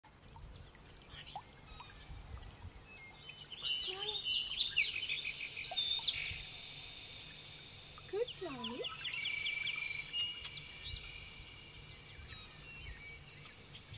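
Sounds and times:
lovebirds chirping: 7.9s - 11.5s.

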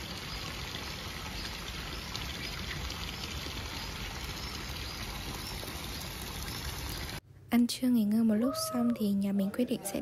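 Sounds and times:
fountain water pouring into pool: 0.0s - 7.2s.

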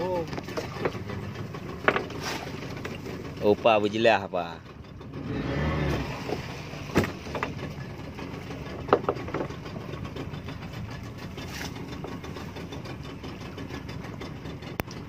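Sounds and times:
boat engine running: 0.0s - 15.0s
sharp knocks: 8.9s - 9.5s.

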